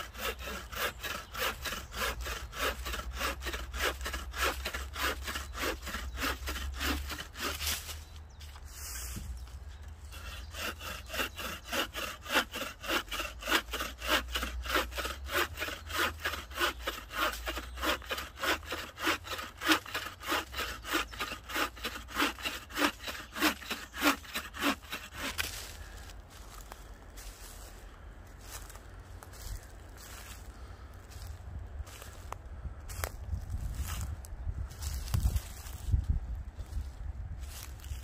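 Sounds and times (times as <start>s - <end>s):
hand saw cutting wood: 0.0s - 8.0s, 10.0s - 25.9s.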